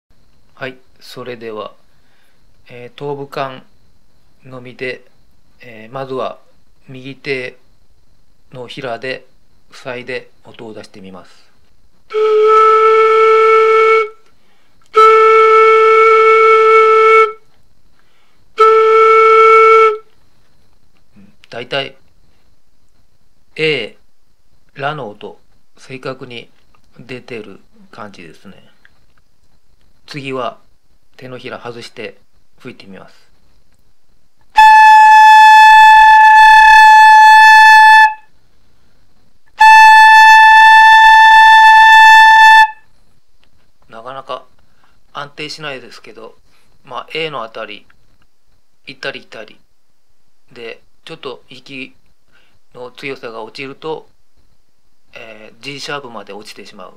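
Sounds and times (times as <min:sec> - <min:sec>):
breathy flute note: 0:34.6 - 0:38.3, 0:39.6 - 0:42.8.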